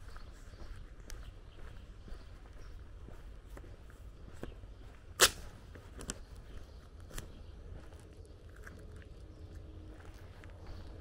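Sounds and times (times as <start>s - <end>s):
footsteps on asphalt: 0.0s - 11.0s.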